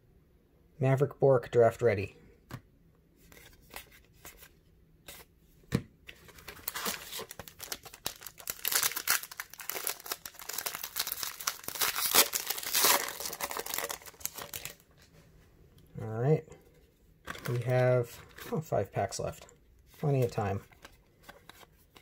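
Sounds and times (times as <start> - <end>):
foil pack crinkling and tearing: 6.4 - 14.8.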